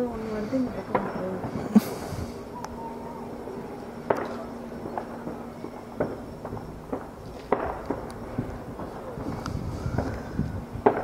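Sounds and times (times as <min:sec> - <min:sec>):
fireworks bangs and pops: 0:00.8 - 0:02.1, 0:04.1 - 0:11.0.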